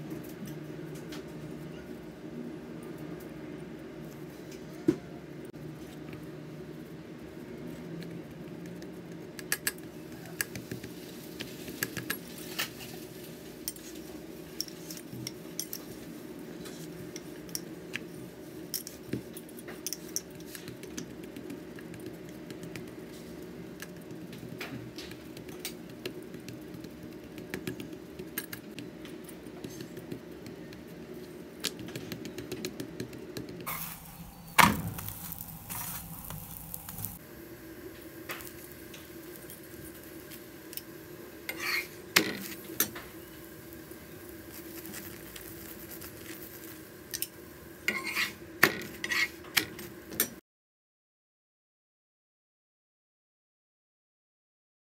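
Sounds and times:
steady low hum: 0.0 - 50.1
flatbread sizzling on pan: 9.6 - 28.8, 33.6 - 50.2.

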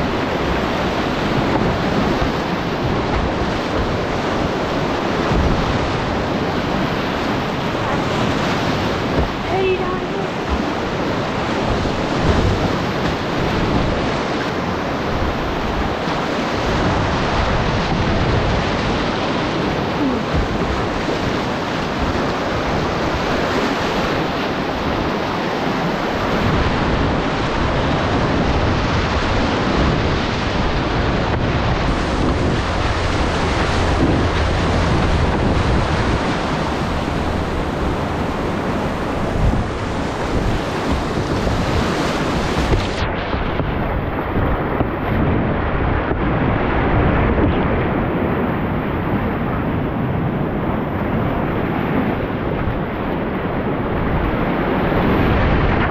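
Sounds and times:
whitewater rapid rushing: 0.0 - 55.9
low uneven rumble: 30.9 - 40.9.

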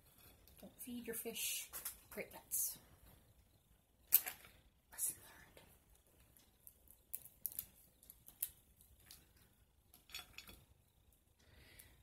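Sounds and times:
crawfish shell cracking: 6.4 - 10.4.

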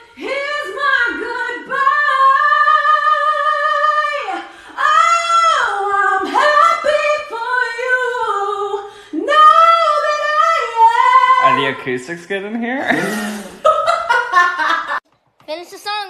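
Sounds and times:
woman singing a cappella: 0.0 - 11.5.

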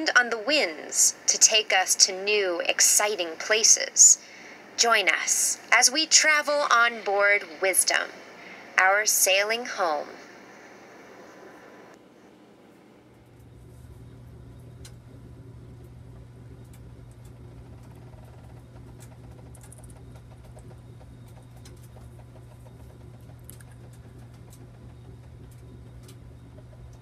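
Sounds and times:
heater burner rumbling: 0.0 - 27.0
crackles and ticks: 13.2 - 27.0.

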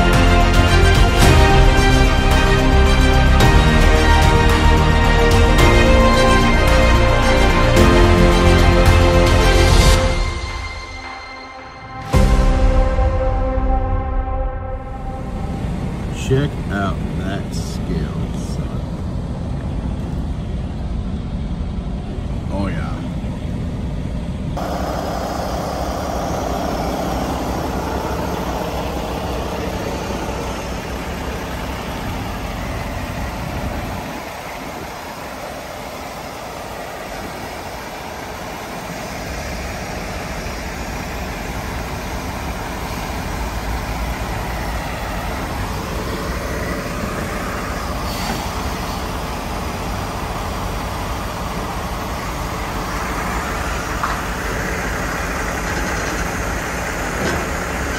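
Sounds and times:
diesel truck engine rumble: 0.0 - 57.9.

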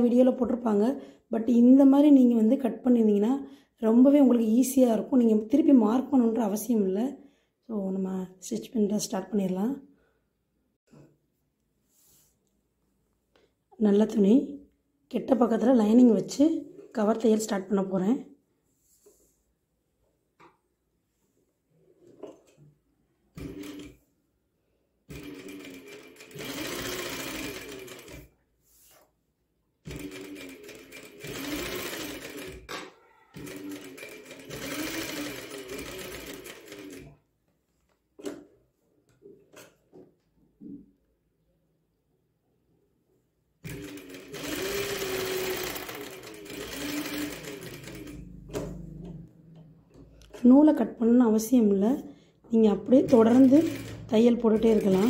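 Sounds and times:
sewing machine stitching: 23.3 - 24.0, 25.1 - 28.3, 29.9 - 37.2, 43.6 - 50.5, 52.7 - 55.0.

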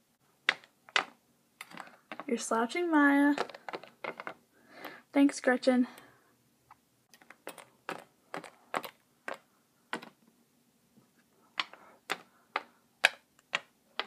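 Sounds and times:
plastic toy clicking on tabletop: 11.6 - 14.0.

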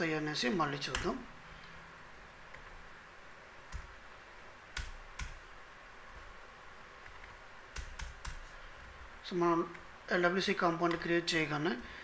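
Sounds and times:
faint room hiss: 0.0 - 12.0
computer keyboard or mouse clicks: 3.7 - 4.0, 4.7 - 5.4, 7.0 - 8.5.

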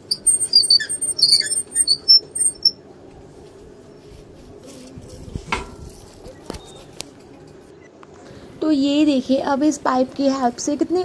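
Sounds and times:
hose reel squeaking: 0.0 - 2.8.

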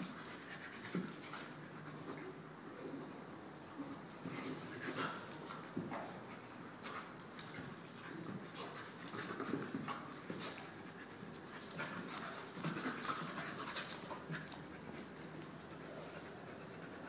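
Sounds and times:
dogs panting: 4.3 - 17.0.

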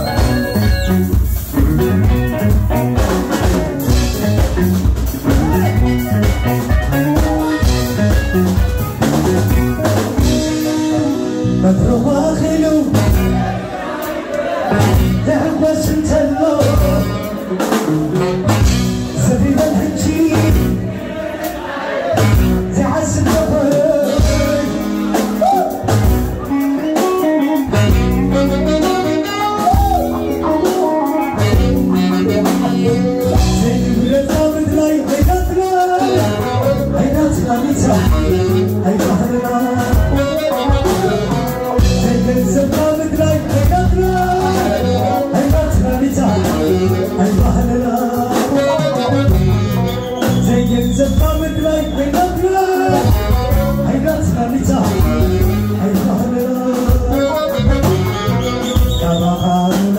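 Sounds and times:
live band playing: 0.0 - 59.9
man singing into microphone: 10.4 - 26.6, 29.0 - 59.9.

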